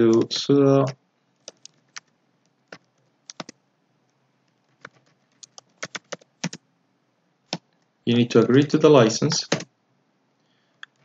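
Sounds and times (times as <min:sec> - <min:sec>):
computer keyboard key clicks: 0:01.4 - 0:02.1, 0:02.7 - 0:03.6, 0:04.8 - 0:06.6.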